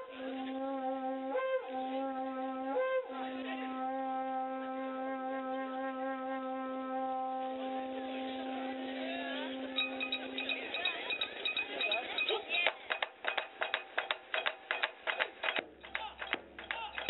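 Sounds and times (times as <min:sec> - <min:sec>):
wind instrument low note: 0:00.0 - 0:10.4.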